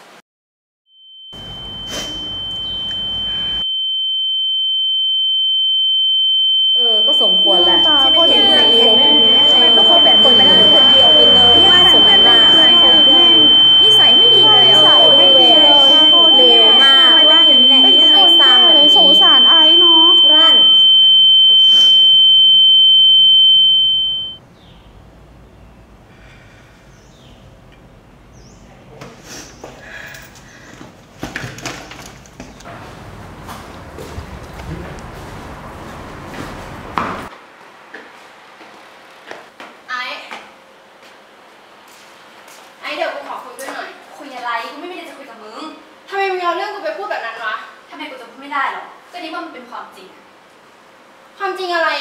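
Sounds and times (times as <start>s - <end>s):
high-pitched electronic ringing tone: 1.0s - 24.4s.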